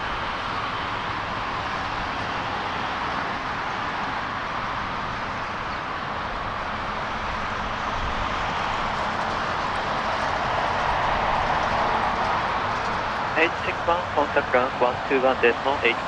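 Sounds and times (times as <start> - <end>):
jet engines idling: 12.8 - 16.0.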